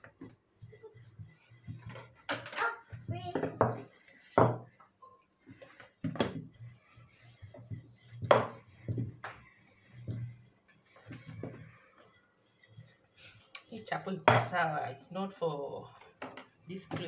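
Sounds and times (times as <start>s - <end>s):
rolling pin rubbing dough: 0.0s - 15.1s
rolling pin knocking on board: 4.4s - 4.7s, 7.6s - 10.4s.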